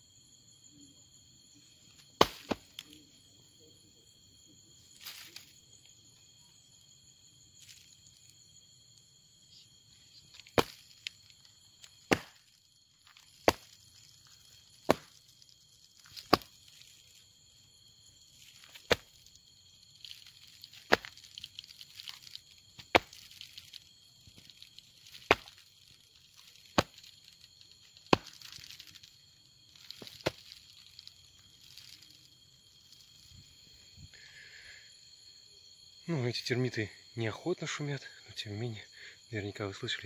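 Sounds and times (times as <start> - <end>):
night insects chorus: 0.0 - 40.0
sharp knocks on ground: 2.2 - 3.0, 10.3 - 11.2, 11.8 - 14.0, 14.7 - 15.4, 16.0 - 16.9, 18.4 - 19.3, 20.0 - 23.8, 24.4 - 25.6, 26.4 - 27.1, 28.0 - 29.0, 29.8 - 32.0.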